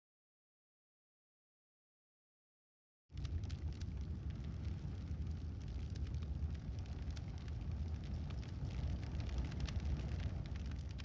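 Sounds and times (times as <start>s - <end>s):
fire crackling: 3.1s - 11.0s
fire rumbling: 3.1s - 11.0s.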